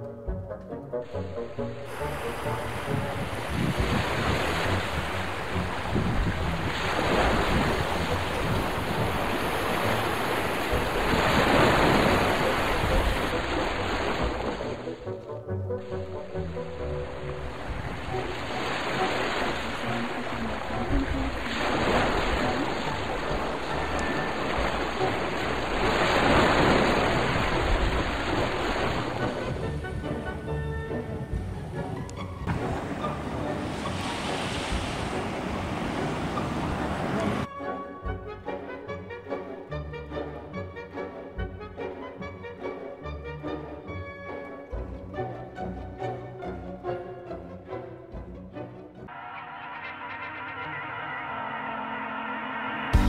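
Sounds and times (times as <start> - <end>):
faint background music: 0.0 - 49.1
wind buffeting microphone: 1.9 - 13.6, 19.9 - 37.5
waves washing onto rocky shore: 1.9 - 14.8, 17.7 - 29.5, 32.5 - 37.5.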